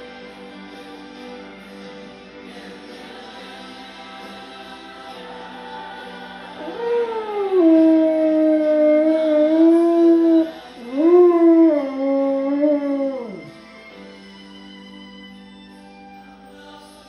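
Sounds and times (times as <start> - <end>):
worship music: 0.0 - 17.0
dog howling along: 6.6 - 13.6.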